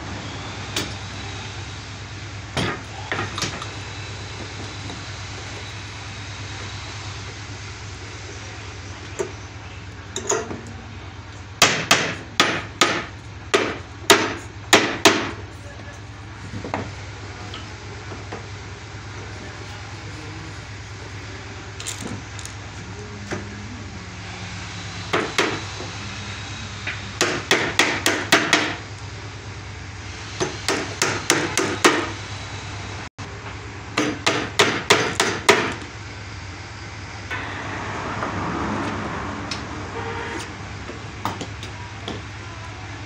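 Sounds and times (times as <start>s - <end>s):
steady low hum: 0.0s - 43.0s
hammer striking nails into wood: 11.6s - 15.4s, 27.2s - 28.8s, 30.4s - 32.1s, 34.0s - 35.9s.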